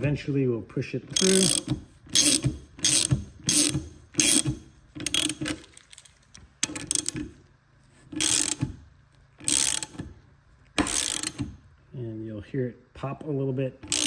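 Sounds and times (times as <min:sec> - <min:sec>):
hand ratchet clicking: 0:01.1 - 0:05.6, 0:06.6 - 0:07.2, 0:08.1 - 0:08.7, 0:09.4 - 0:10.1, 0:10.8 - 0:11.5.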